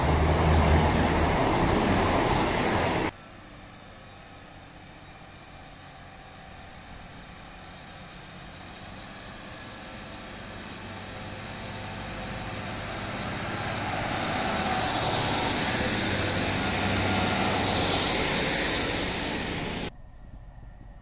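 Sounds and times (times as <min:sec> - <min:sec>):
train wheels on rails: 0:00.0 - 0:03.2, 0:07.0 - 0:19.9
diesel train engine: 0:00.0 - 0:20.0.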